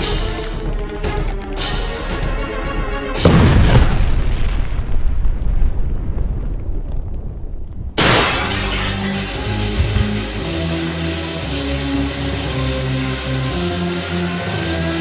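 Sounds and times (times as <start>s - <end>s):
music: 0.0s - 4.1s, 8.1s - 15.0s
explosion boom: 3.2s - 9.1s.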